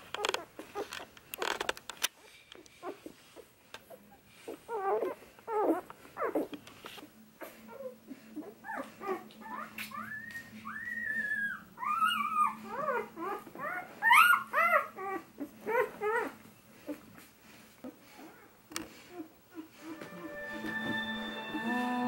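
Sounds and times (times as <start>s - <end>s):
puppies squeaking and whimpering: 0.1s - 6.6s, 7.4s - 17.1s.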